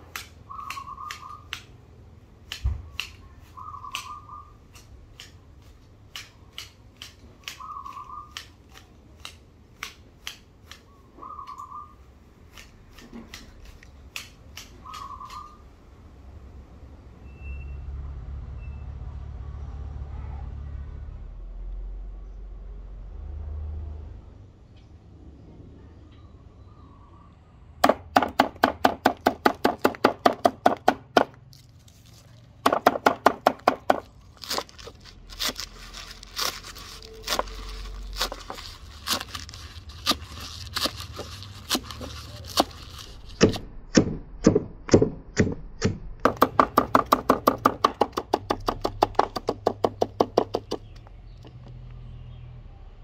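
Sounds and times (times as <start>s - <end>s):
axe chopping on wooden block: 27.8s - 31.4s, 32.6s - 34.6s, 43.4s - 50.9s.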